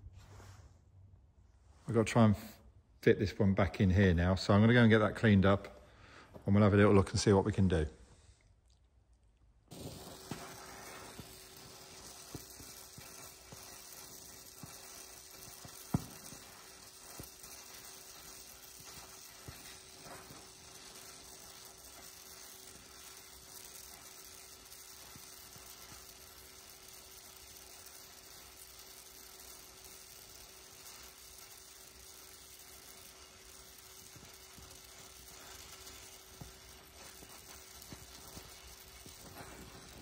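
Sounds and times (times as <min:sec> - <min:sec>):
crackles: 0:01.6 - 0:40.0
torch flame hissing: 0:09.7 - 0:40.0.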